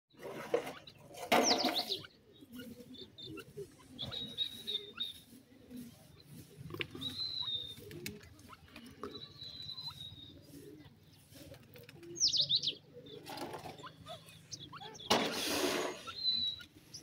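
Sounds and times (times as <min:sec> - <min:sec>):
birds chirping and whistling: 0:00.1 - 0:17.0.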